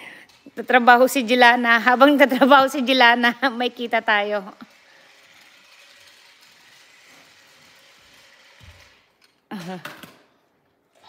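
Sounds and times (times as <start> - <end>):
toy chainsaw whirring: 4.4 - 9.4.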